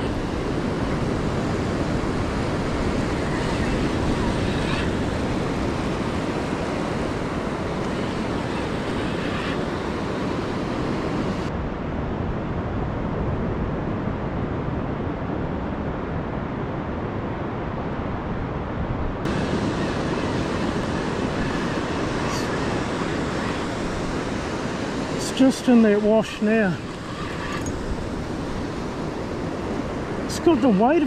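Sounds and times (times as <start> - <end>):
wind noise on microphone: 0.0 - 31.0
surf breaking on beach: 19.2 - 31.0.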